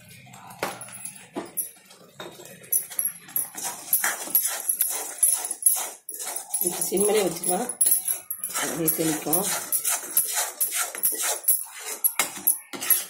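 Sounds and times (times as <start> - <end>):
ladle scraping pan: 3.4 - 13.0.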